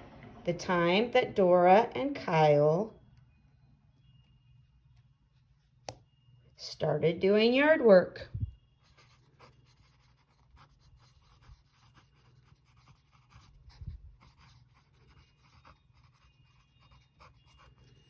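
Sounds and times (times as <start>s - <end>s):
pen scratching on paper: 8.8s - 18.0s.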